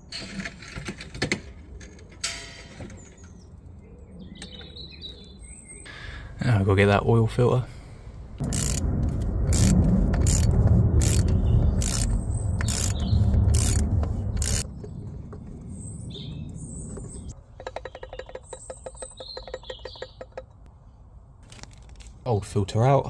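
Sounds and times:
birds chirping: 1.5 - 7.2, 10.9 - 20.7
low rumble: 7.8 - 17.4
socket ratchet clicking: 8.4 - 8.9, 9.5 - 14.6.

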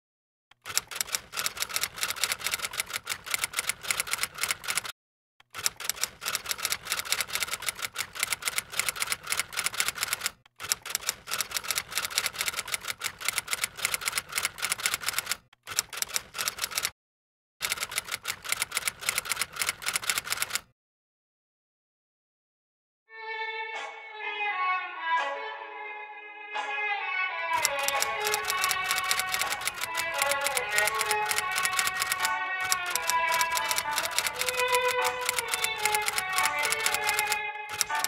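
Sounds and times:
rapid keyboard typing: 0.6 - 4.9, 5.5 - 16.9, 17.6 - 20.7, 27.6 - 38.0.

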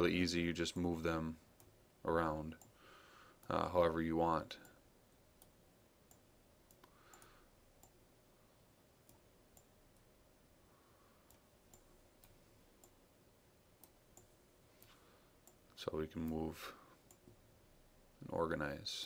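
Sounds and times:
faint computer mouse clicks: 5.4 - 8.0.

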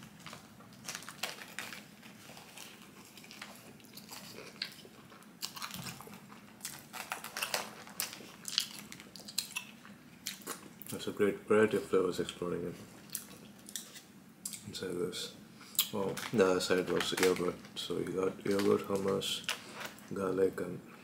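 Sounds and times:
paper wrapper rustling: 0.0 - 4.8, 5.5 - 9.3, 16.0 - 20.0
person chewing crunchy food: 0.2 - 10.8.

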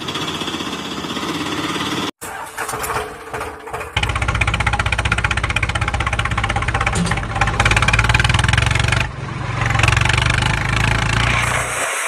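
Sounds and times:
tractor engine chugging: 0.0 - 9.1.

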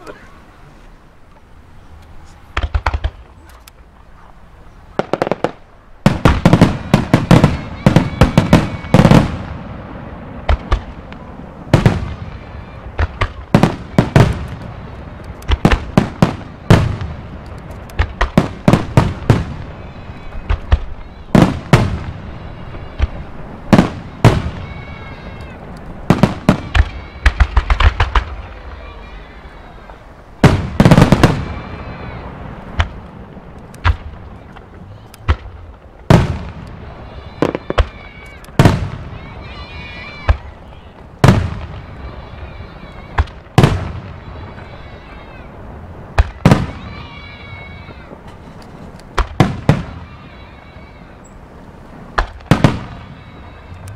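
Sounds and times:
firework shells bursting: 10.4 - 45.4.

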